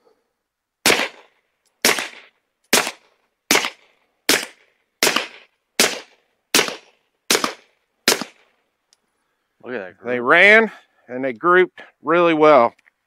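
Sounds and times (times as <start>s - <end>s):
suppressed pistol shots: 0.8s - 8.4s.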